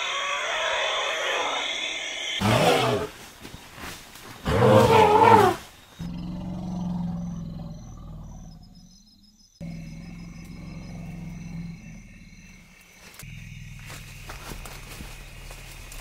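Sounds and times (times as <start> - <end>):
elephant trumpeting: 0.0 - 3.2, 4.4 - 5.6.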